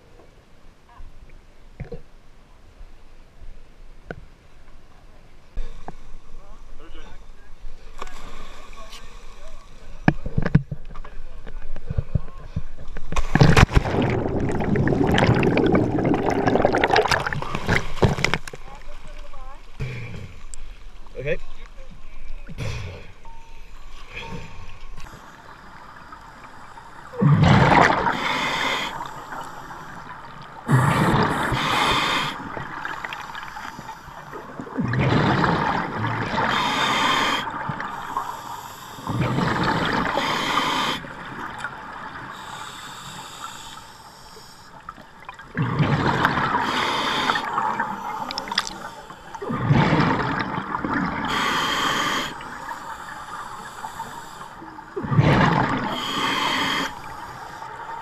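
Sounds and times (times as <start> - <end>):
exhaled bubbles rushing: 13.3 - 18.4, 27.1 - 28.3, 30.6 - 33.7, 34.4 - 36.9, 39.1 - 40.3, 45.3 - 46.8, 47.4 - 51.4, 55.0 - 56.0
diver breathing through regulator: 26.4 - 30.1, 30.7 - 34.6, 36.3 - 41.2, 42.3 - 44.8, 46.5 - 50.2, 51.2 - 54.6, 55.4 - 57.8.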